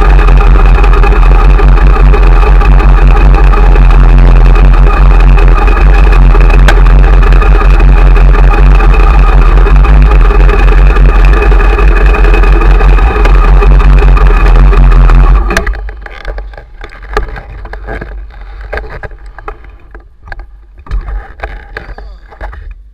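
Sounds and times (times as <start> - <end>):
motorcycle engine idling: 0.0 - 20.0
faint clicks and knocks: 9.5 - 22.8.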